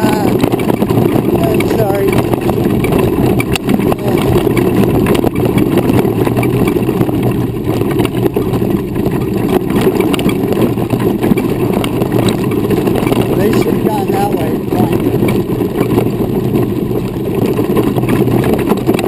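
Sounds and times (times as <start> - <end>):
wheelchair wheels rolling over gravel: 0.0 - 19.0
wind on microphone: 0.0 - 19.0.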